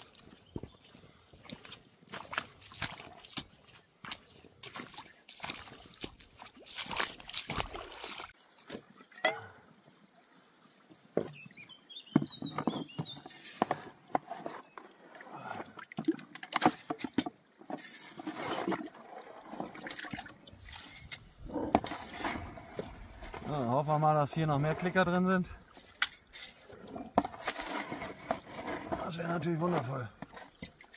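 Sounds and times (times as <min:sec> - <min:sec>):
water splashing: 0:04.6 - 0:09.6, 0:15.0 - 0:30.9
shovel scraping gravel: 0:17.7 - 0:19.7, 0:20.8 - 0:25.0, 0:25.8 - 0:30.6.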